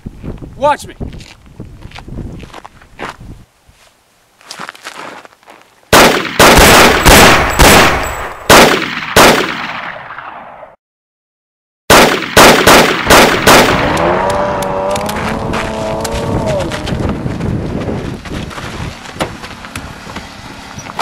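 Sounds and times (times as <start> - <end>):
loud gunshots: 5.9 - 10.4, 11.9 - 14.3
car engine revving: 13.7 - 17.0.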